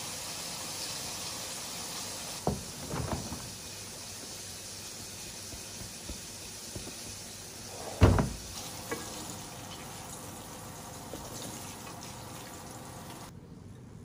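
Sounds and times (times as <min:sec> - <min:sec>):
faint steady hiss: 0:00.0 - 0:14.0
kitchen cabinet shutting: 0:02.4 - 0:03.6, 0:07.7 - 0:09.3.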